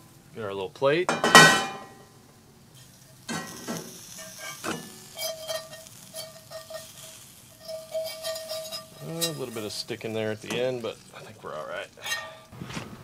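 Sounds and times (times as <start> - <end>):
oil sizzling and crackling: 0.0 - 13.0
fork scraping cast iron skillet: 2.7 - 12.6.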